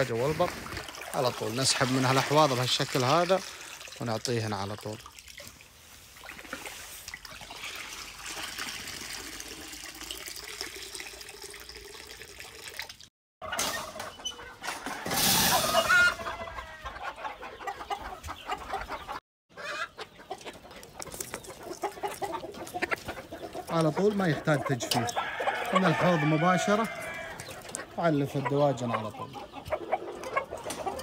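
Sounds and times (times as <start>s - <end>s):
chickens clucking: 13.4s - 31.0s.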